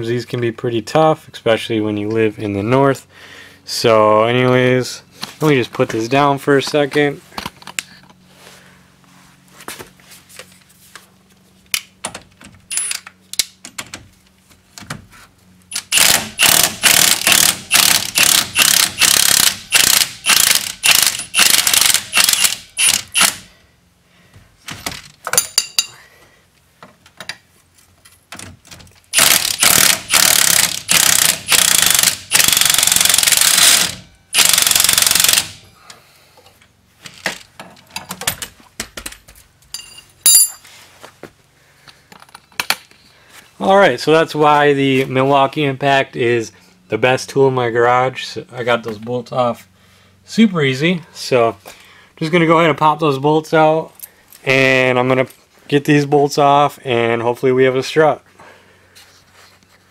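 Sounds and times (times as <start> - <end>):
impact wrench hammering: 15.7 - 23.5, 29.1 - 35.6.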